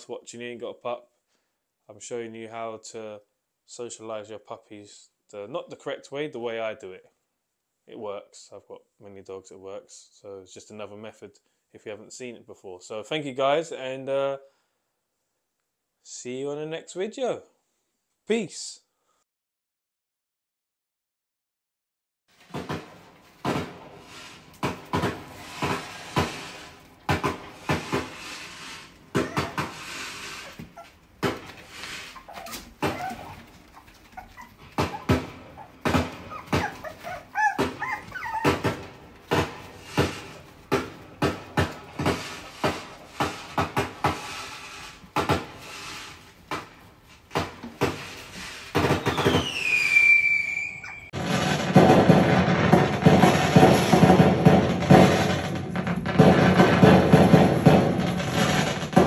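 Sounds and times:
puppies yapping: 27.5 - 40.7, 48.6 - 51.2.

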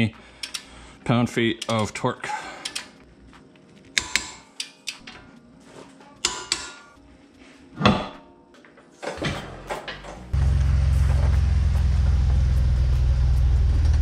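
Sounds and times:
hand tools clicking and clanking: 0.4 - 0.8, 1.6 - 3.0, 3.9 - 5.4, 6.1 - 6.9
vehicle engine running: 10.3 - 14.0.

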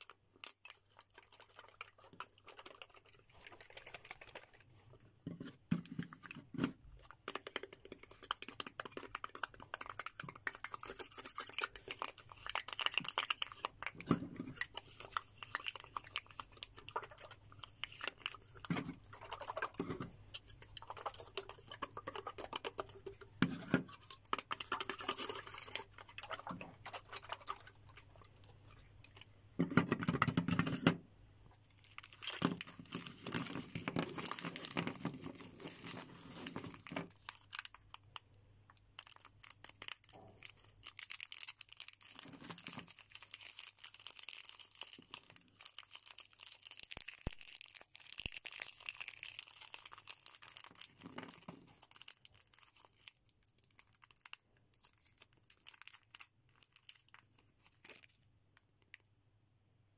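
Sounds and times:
plastic crinkling rustle: 0.3 - 29.4, 31.6 - 38.3, 39.0 - 59.1
fingers tapping plastic cups: 7.1 - 14.6.

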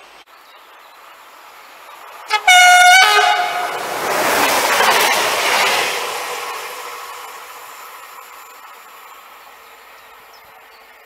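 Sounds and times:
train rolling noise: 1.0 - 11.0
train two-tone horn: 2.3 - 4.1.

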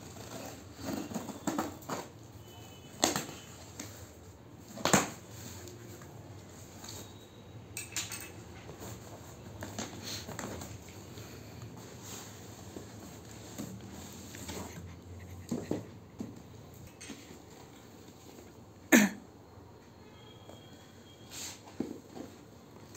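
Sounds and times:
cardboard rustling and scraping: 0.0 - 2.2, 8.7 - 16.4.

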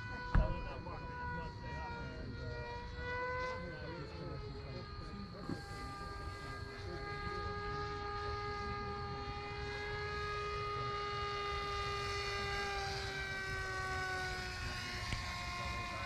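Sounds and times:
model airplane propeller whine: 0.0 - 16.0.

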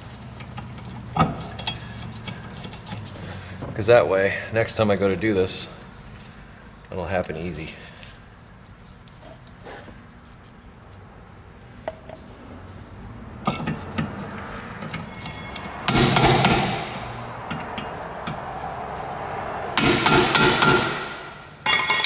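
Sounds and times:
metallic ring: 14.9 - 17.6, 19.8 - 22.0
hammer striking metal driver: 15.3 - 17.9, 19.8 - 22.0.

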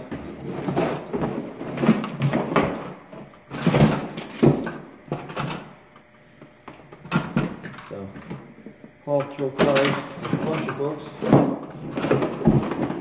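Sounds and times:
toys and books knocking: 8.6 - 13.0.

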